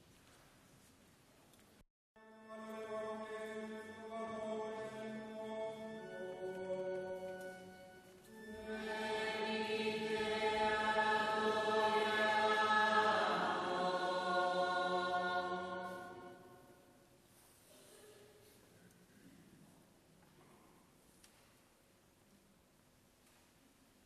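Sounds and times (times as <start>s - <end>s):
person chanting: 2.2s - 16.8s
group of voices singing: 8.3s - 16.7s.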